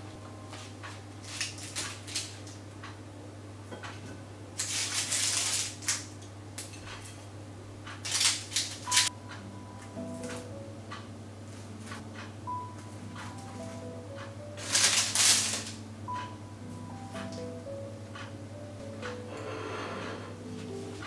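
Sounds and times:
paper rustling: 14.6s - 15.8s
metal spatula scraping baking tray: 19.3s - 20.4s.

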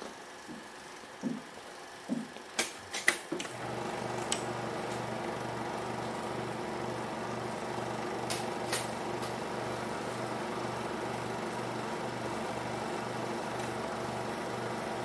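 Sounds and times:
film projector whirring: 0.0s - 15.0s
film projector clicks: 2.6s - 5.4s, 8.0s - 9.5s.

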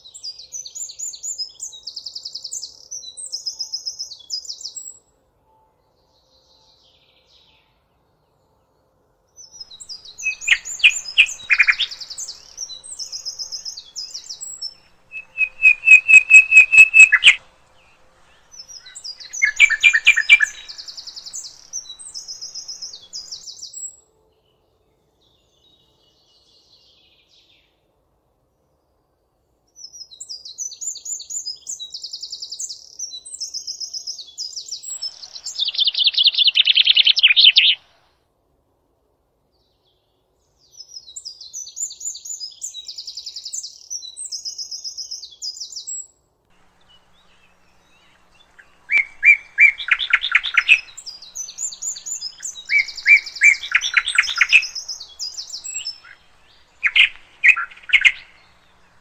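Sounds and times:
nightingale singing: 9.4s - 24.0s, 30.0s - 38.0s, 40.6s - 59.0s.

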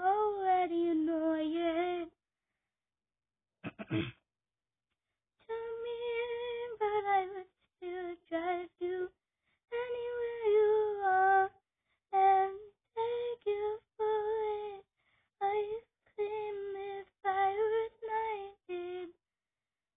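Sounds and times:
girl singing: 0.0s - 2.1s, 5.5s - 9.1s, 9.7s - 14.8s, 15.4s - 19.2s.

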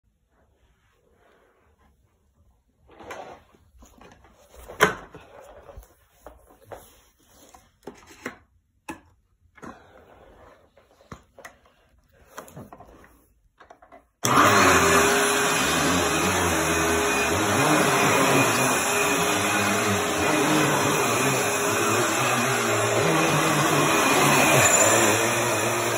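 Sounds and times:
vacuum cleaner running: 14.2s - 25.9s.

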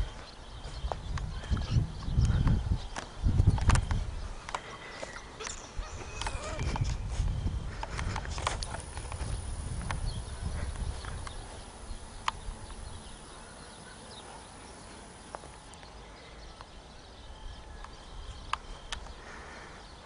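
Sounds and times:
footsteps on dry grass: 0.0s - 5.1s, 5.8s - 13.2s
sharp clicks: 12.2s - 12.8s.

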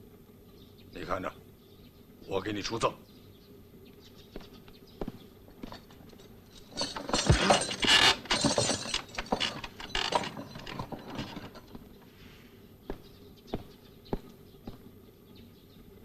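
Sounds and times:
wooden poles and iron clattering: 4.5s - 12.0s.

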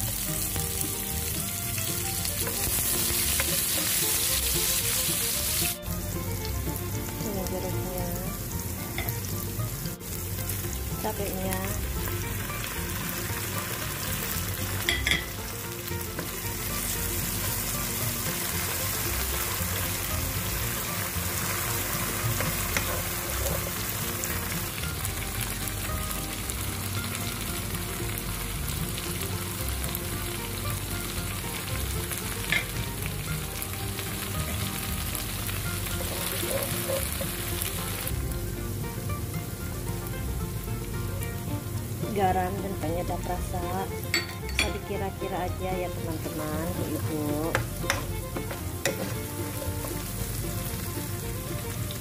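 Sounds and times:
food sizzling in hot oil: 0.0s - 52.0s
wooden spatula stirring: 16.1s - 24.8s, 36.0s - 37.8s, 44.1s - 50.2s.

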